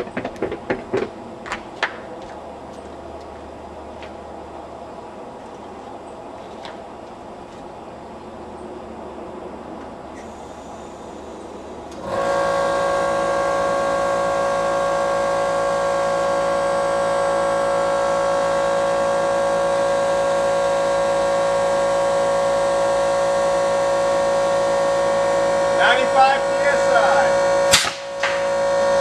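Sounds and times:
motor-driven machine whine: 8.9s - 29.0s.

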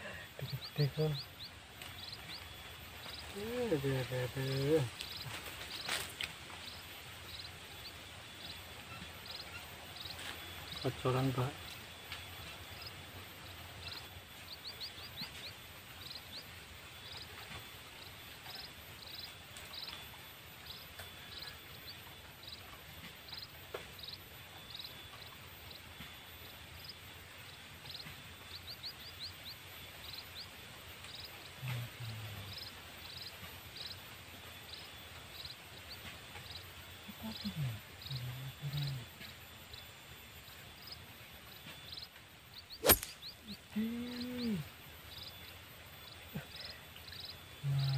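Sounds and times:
faint steady hiss: 0.0s - 47.9s
high short chirps: 42.8s - 43.3s.

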